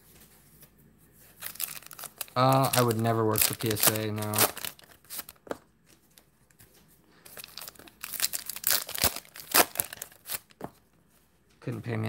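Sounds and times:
wax paper wrapper crinkling and tearing: 1.2 - 6.3, 7.2 - 10.7.

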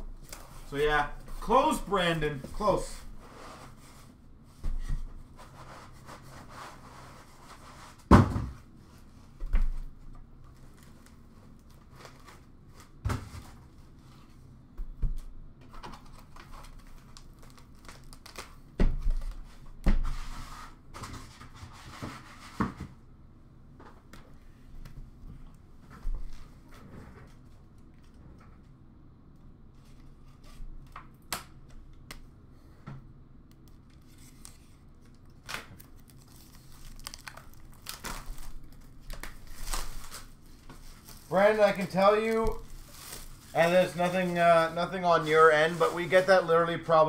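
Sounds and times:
packing rustling and crinkling: 15.8 - 19.5, 35.7 - 46.5.

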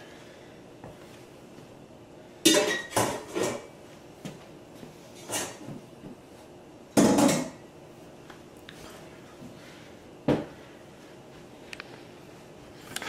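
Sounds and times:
kitchenware clattering in metal sink: 2.5 - 3.7.

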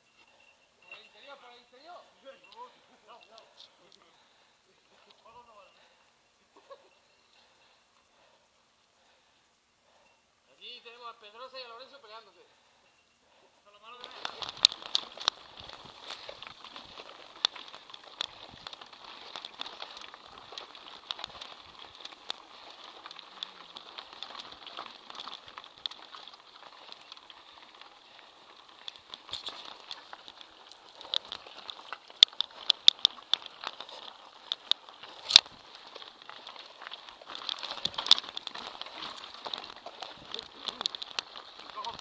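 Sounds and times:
tyres crunching on loose stones: 13.8 - 42.0
bike rattling and clicking: 13.9 - 42.0.

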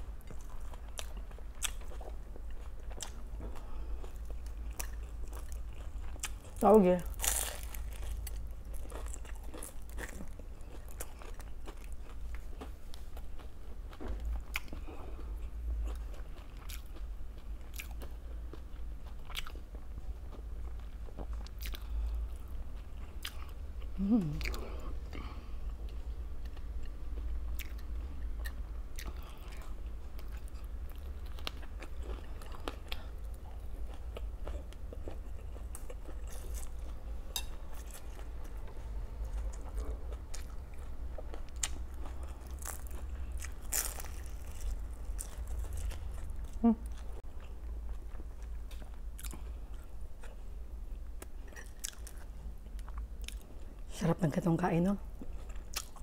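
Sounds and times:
person chewing and crunching food: 0.0 - 53.9, 55.1 - 56.0
person humming: 24.0 - 24.8, 46.6 - 46.9.

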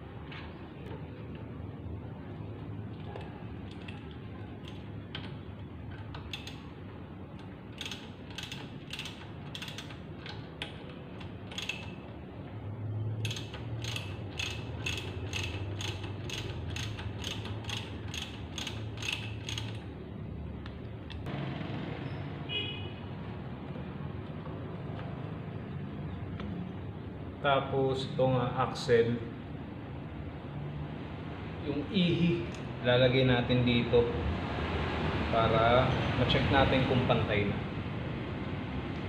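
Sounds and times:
ratchet wrench clicking: 3.7 - 6.8, 7.4 - 12.1, 13.2 - 19.9.

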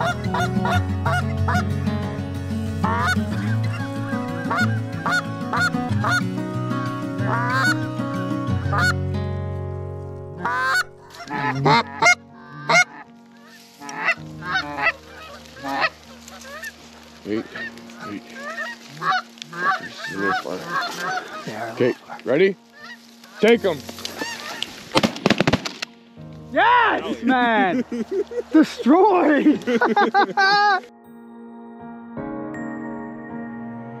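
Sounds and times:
geese honking: 0.0 - 9.0, 10.3 - 25.0.

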